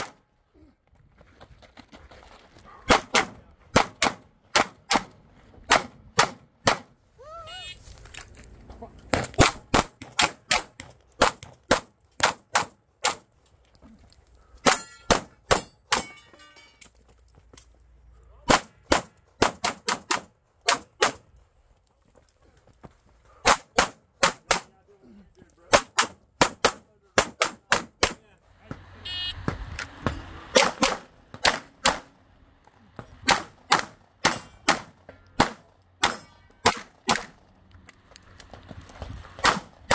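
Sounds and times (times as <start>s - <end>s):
pistol shots: 2.9s - 6.9s, 33.2s - 37.4s
bullets ringing on steel targets: 14.6s - 17.0s, 34.2s - 37.4s.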